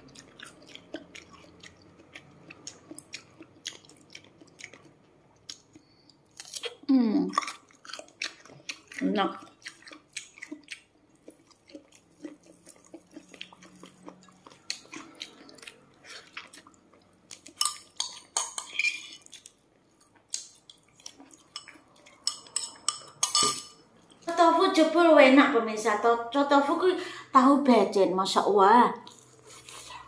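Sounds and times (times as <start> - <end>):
chewing crispy food: 0.0 - 23.2, 23.8 - 24.4.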